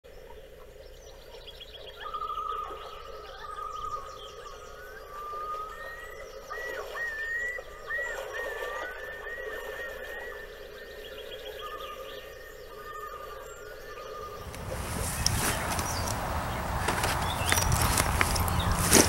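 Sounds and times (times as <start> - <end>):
birds singing trills: 0.1 - 19.0
steady background hum: 13.3 - 19.0.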